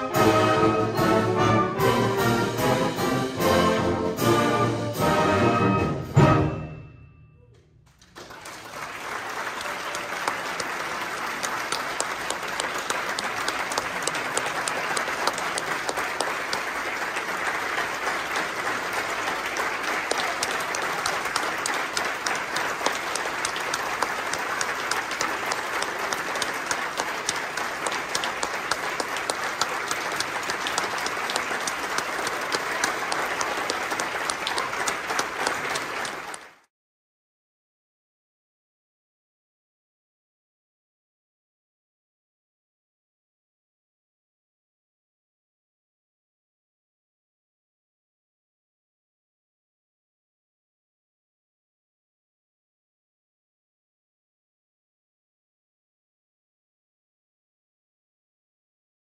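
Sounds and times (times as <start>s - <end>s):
audience applauding: 7.9s - 36.7s.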